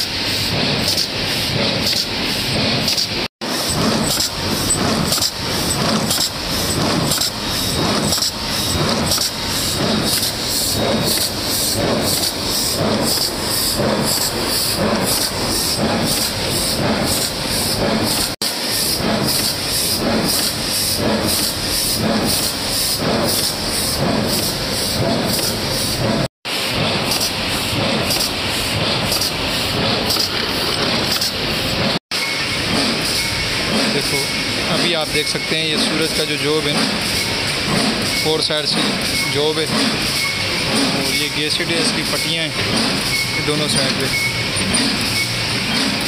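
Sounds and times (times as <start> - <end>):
bag making machine clatter: 2.8 - 13.3, 25.1 - 32.0, 33.7 - 46.0.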